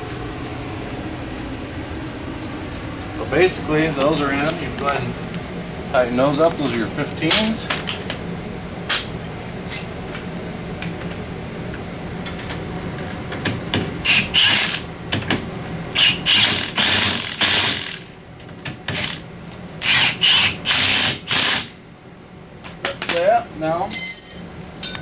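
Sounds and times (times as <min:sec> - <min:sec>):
impact wrench hammering: 0:16.0 - 0:18.1.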